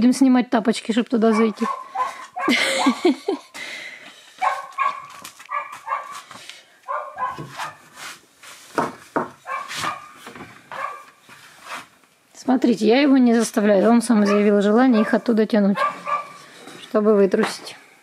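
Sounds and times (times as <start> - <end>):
dog barking and whining: 1.3 - 3.0, 4.4 - 6.2, 6.8 - 7.9, 9.4 - 11.2, 14.2 - 16.4.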